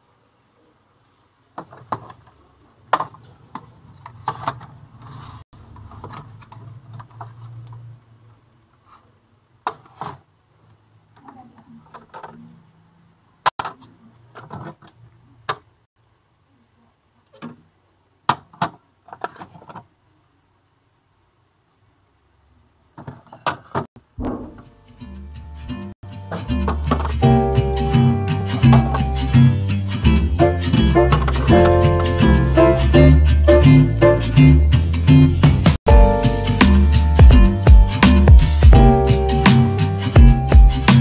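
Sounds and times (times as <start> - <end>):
low hum: 24.0 - 25.9.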